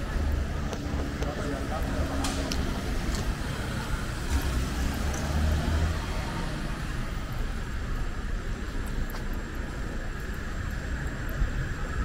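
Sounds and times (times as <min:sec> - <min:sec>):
passing vehicle engine rumble: 0:00.0 - 0:12.0
steady traffic hum: 0:00.0 - 0:12.0.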